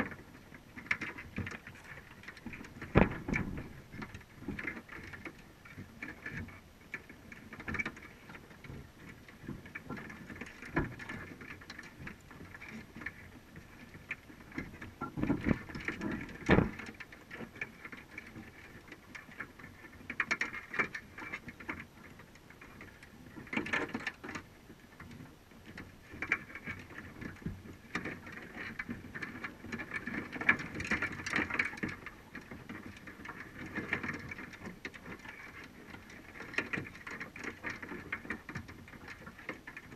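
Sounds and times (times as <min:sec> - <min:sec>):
underwater crackling and clicking: 0:00.0 - 0:39.9.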